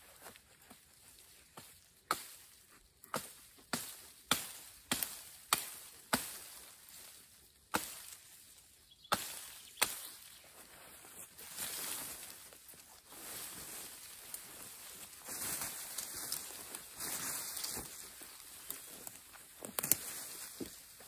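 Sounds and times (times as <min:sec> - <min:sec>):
hatchet chopping branches: 0:01.6 - 0:02.5, 0:03.1 - 0:07.0, 0:07.7 - 0:08.3, 0:09.1 - 0:10.3.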